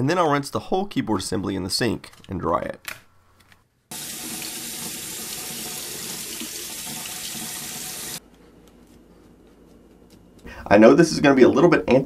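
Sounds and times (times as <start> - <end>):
tap water running into steel sink: 3.9 - 8.2.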